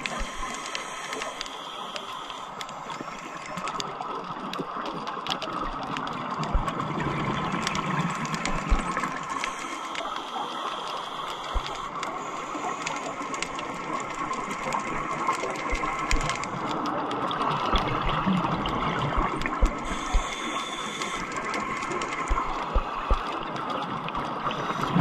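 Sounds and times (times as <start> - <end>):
underwater hiss and clicks: 0.0 - 25.0
soft low thumps: 6.5 - 6.7, 19.1 - 20.3, 22.3 - 23.3.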